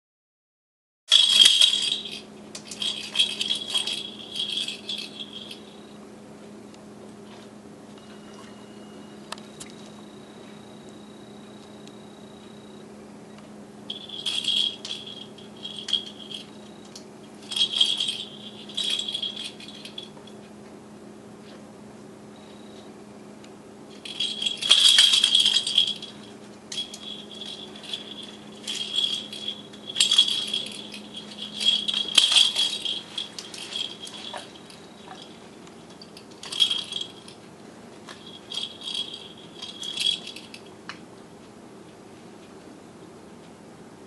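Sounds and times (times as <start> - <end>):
plastic rattle ball jingling: 1.1 - 5.8, 13.9 - 16.6, 17.4 - 20.1, 24.0 - 37.4, 38.1 - 40.7.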